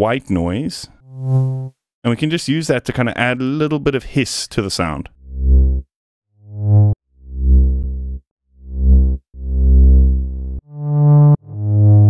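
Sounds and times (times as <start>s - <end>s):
low synthesizer notes: 5.2s - 5.9s, 6.5s - 12.0s.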